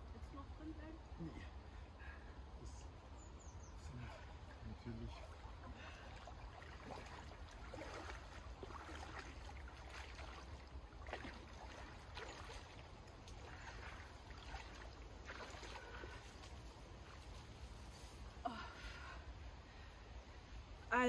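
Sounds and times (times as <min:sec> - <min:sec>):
legs wading through water: 0:03.7 - 0:17.8.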